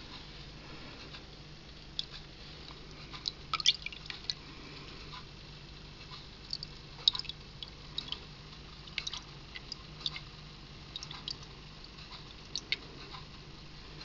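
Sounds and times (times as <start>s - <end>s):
faint low hum: 0.0s - 14.0s
water dripping plinks: 3.1s - 4.4s, 6.4s - 10.3s, 10.9s - 12.9s.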